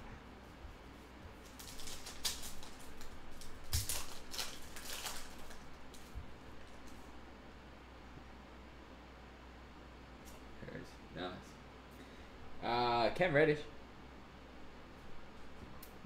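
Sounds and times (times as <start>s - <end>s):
foil wrapper crinkling and tearing: 1.5s - 7.0s.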